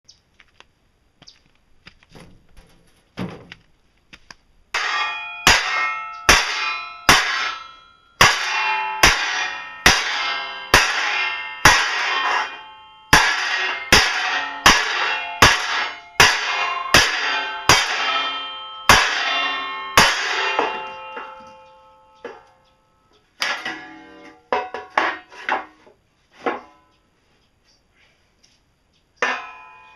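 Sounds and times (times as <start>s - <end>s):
hammer striking metal sheet: 4.7s - 22.5s, 23.4s - 26.8s, 29.2s - 29.9s.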